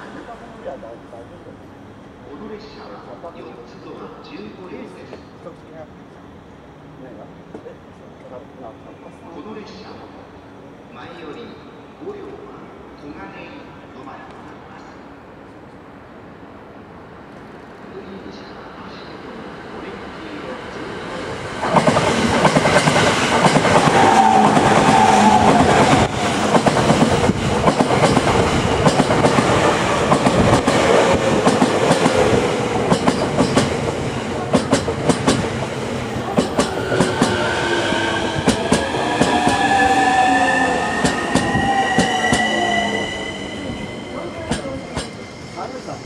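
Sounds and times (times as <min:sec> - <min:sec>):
train wheels clacking over rail joints: 0:21.6 - 0:35.7, 0:36.3 - 0:37.4.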